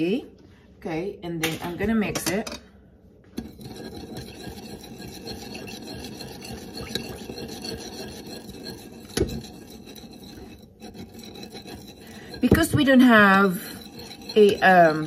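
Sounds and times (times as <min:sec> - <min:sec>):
metal spoon scraping ceramic bowl: 0:03.4 - 0:15.0.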